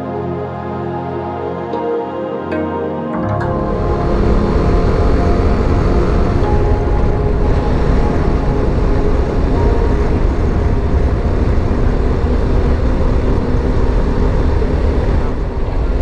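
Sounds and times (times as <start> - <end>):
motorcycle engine drone: 3.4 - 16.0
road and wind rumble: 3.4 - 16.0.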